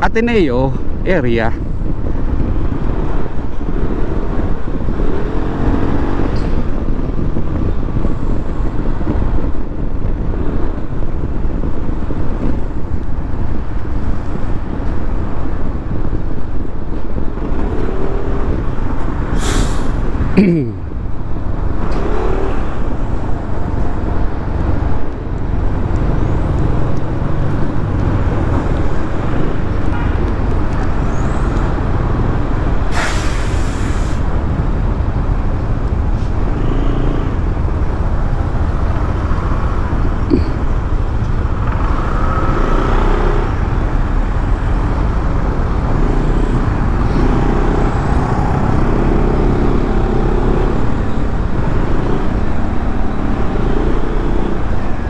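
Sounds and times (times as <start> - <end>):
wind and road noise: 0.0 - 55.0
sharp hiss: 19.3 - 20.0, 32.9 - 34.2.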